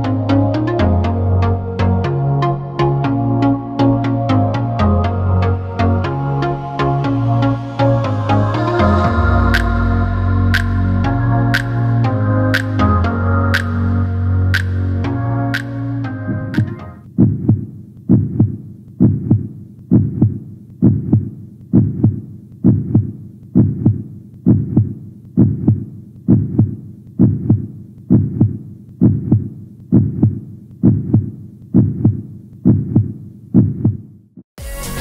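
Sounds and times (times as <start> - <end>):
heartbeat: 16.3 - 34.4.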